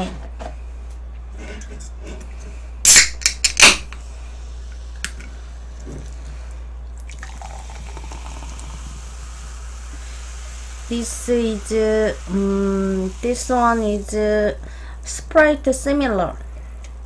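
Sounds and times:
soda can cracked open: 0:02.8 - 0:04.0
soda pouring into glass: 0:07.0 - 0:13.6.

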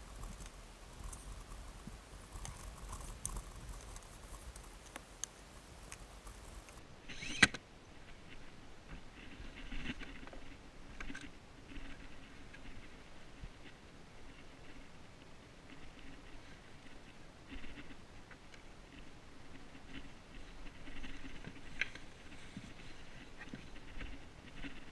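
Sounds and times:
small clicks: 0:00.0 - 0:07.6.

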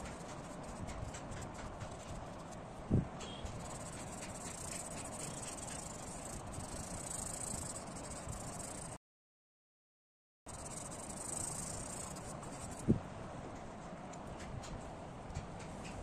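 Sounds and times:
insects chirring: 0:03.6 - 0:08.9, 0:10.5 - 0:12.8.

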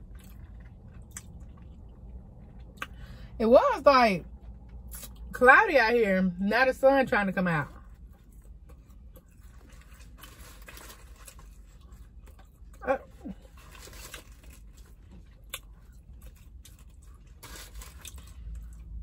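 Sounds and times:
person chewing food: 0:00.0 - 0:03.1, 0:07.8 - 0:19.0.

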